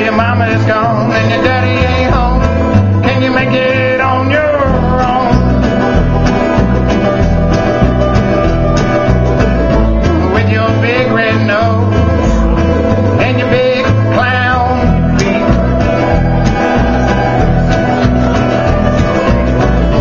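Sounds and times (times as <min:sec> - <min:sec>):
man singing: 0:00.0 - 0:05.7, 0:10.1 - 0:20.0
bluegrass band playing: 0:00.0 - 0:20.0.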